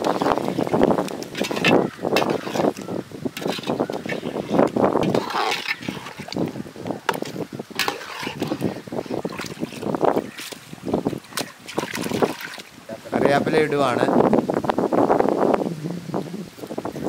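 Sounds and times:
ladle clicking and scraping pot: 0:00.0 - 0:10.7
thick curry sloshing: 0:00.0 - 0:12.8.

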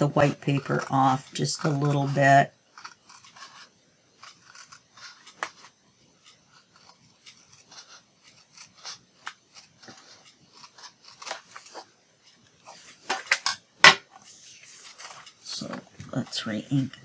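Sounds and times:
paper rustling: 0:14.1 - 0:17.0.

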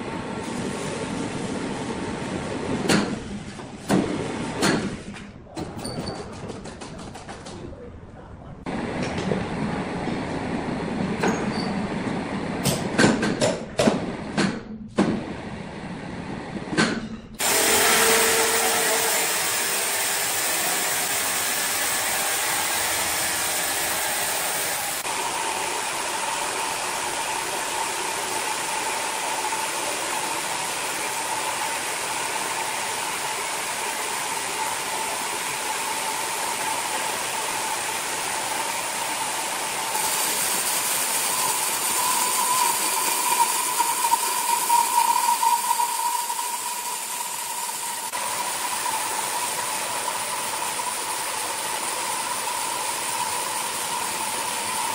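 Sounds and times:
band sawmill sawing log: 0:17.4 - 0:54.9
steady whining tone: 0:41.2 - 0:51.4.

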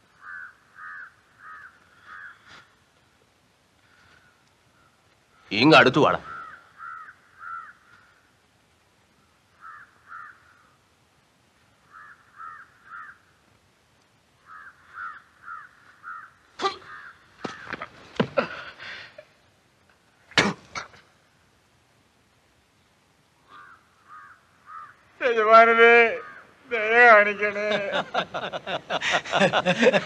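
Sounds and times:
crows cawing: 0:00.2 - 0:02.8, 0:03.8 - 0:05.5, 0:06.2 - 0:08.4, 0:09.5 - 0:10.8, 0:11.8 - 0:13.4, 0:14.4 - 0:17.9, 0:23.4 - 0:26.6.

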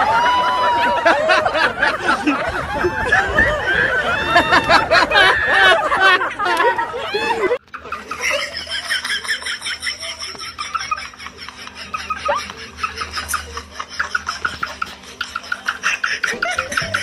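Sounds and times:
faint low hum: 0:00.0 - 0:17.0
rapid giggling: 0:01.1 - 0:17.0.

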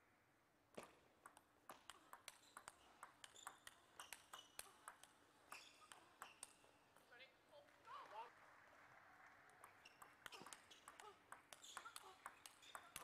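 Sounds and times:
table tennis ball clicking: 0:01.2 - 0:05.2.

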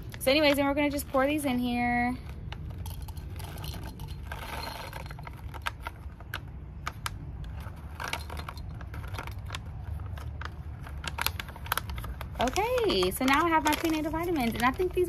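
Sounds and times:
capsules clicking into glass jar: 0:02.7 - 0:05.8.

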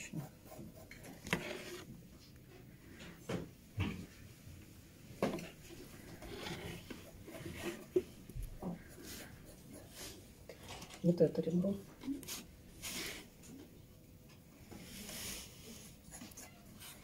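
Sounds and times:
pencil moving on paper: 0:00.0 - 0:01.9, 0:05.4 - 0:10.3.

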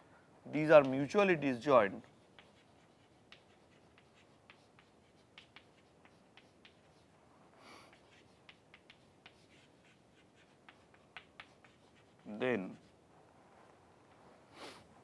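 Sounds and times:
chalk tapping and scratching: 0:00.6 - 0:07.2, 0:07.8 - 0:13.0.

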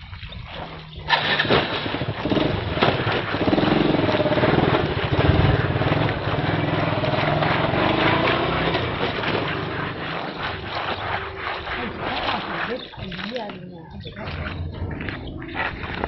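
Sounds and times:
small engine running: 0:00.8 - 0:13.2.

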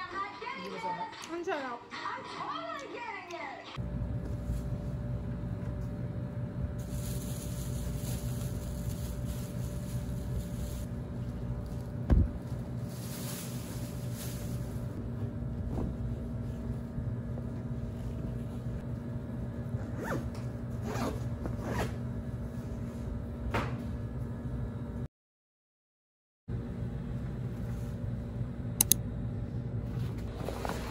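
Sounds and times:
steady low hum: 0:03.8 - 0:25.1, 0:26.5 - 0:30.9
thump: 0:12.1 - 0:12.3
backpack zipper: 0:20.0 - 0:22.0.

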